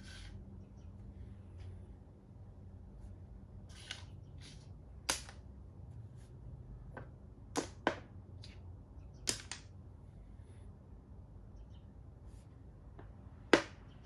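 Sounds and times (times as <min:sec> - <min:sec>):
chess pieces clacking on board: 0:03.7 - 0:05.4.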